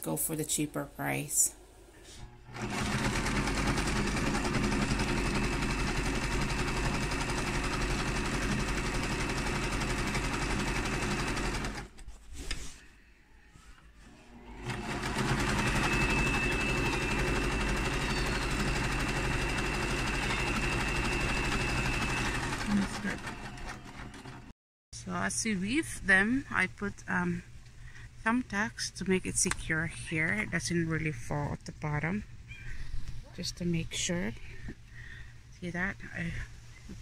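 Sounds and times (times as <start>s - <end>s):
electric sewing machine running: 2.4s - 11.9s, 14.3s - 24.5s.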